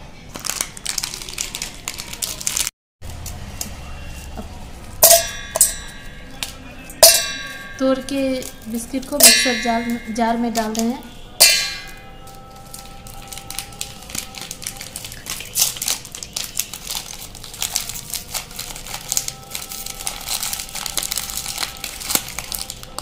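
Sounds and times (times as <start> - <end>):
biscuits cracking and crunching: 0.3 - 3.9, 11.8 - 23.0
metal jar clang: 5.0 - 8.5, 9.2 - 12.2.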